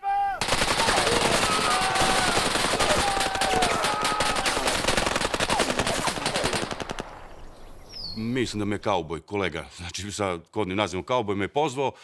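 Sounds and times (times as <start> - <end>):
automatic gunfire: 0.4 - 7.3.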